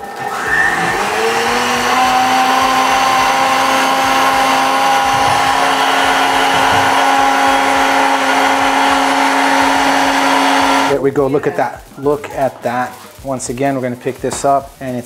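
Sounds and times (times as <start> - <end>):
blender motor whining: 0.0 - 11.0.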